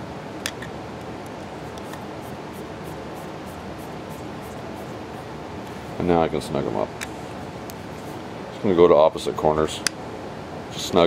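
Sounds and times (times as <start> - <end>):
steady hiss: 1.6 - 9.1.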